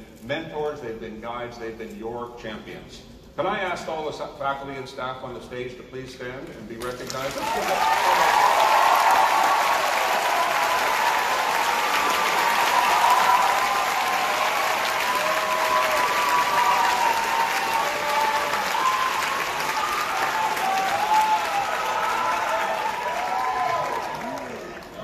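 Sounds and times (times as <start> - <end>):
audience applauding: 6.9 - 25.0.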